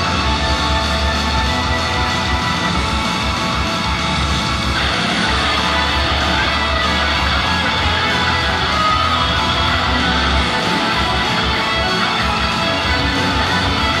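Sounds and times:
pop song through stage speakers: 0.0 - 14.0.

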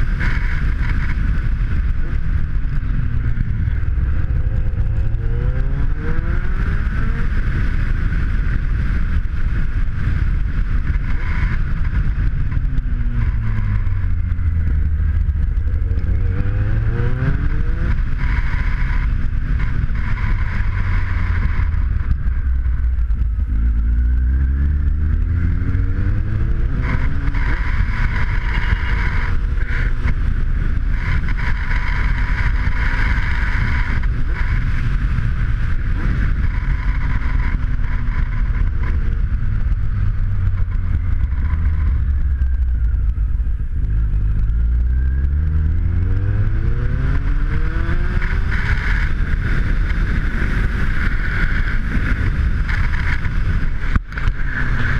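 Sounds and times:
motorcycle engine revving: 0.0 - 54.9
wind noise on microphone: 0.0 - 54.9.

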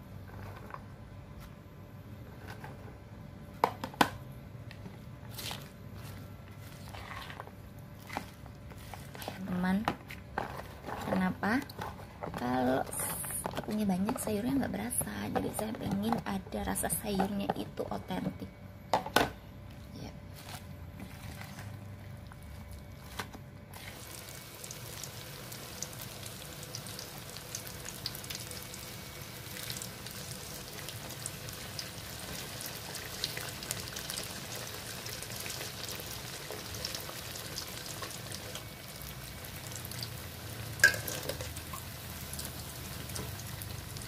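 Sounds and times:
batter deep-frying in oil: 20.8 - 44.0
metal utensil clinking on wok: 40.8 - 41.5.

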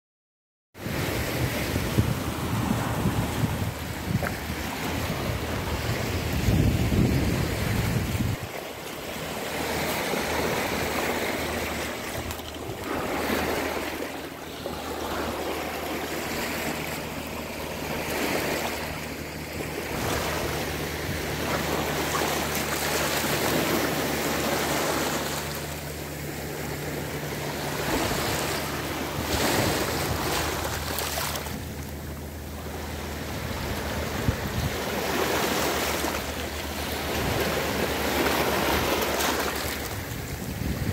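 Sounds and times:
waves washing over pebbles: 0.9 - 40.9.

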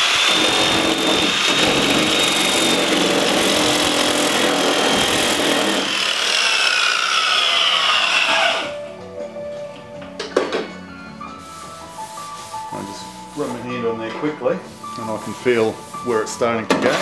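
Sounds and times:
angle grinder motor whine: 5.8 - 8.8.

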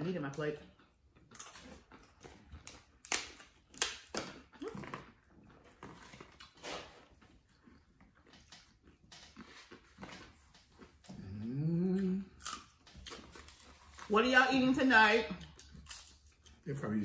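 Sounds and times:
chewing: 0.6 - 14.1, 15.3 - 16.7
tostada shells crunching: 1.1 - 11.3, 12.3 - 14.1, 15.3 - 16.7.

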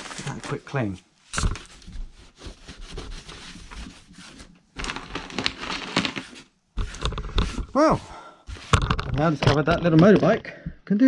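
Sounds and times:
hand scrubbing wooden board: 1.6 - 4.5.

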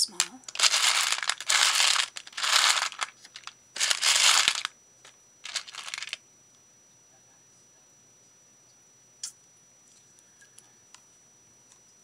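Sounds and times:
plastic boxes rustling: 0.4 - 4.7, 5.4 - 6.2.

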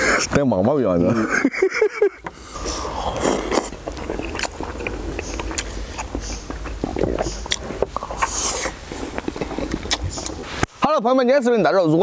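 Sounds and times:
man chewing: 2.0 - 10.7.

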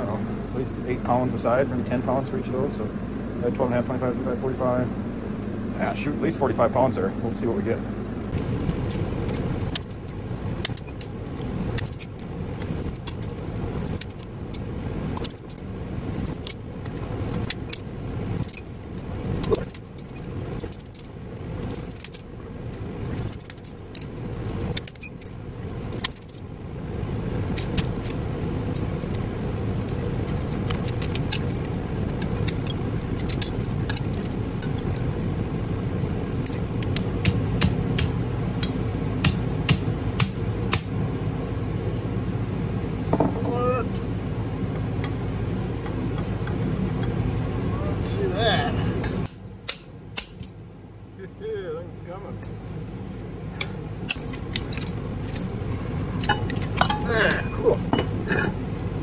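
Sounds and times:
shop fans humming: 0.0 - 59.0
metal bars clinking and rattling: 8.3 - 26.4, 29.8 - 35.1, 52.4 - 58.6.

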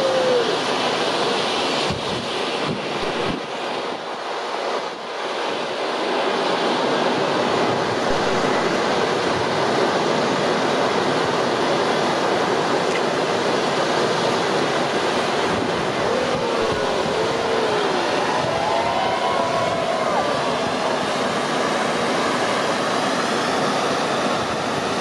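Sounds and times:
firework fountains hissing: 14.9 - 25.0.

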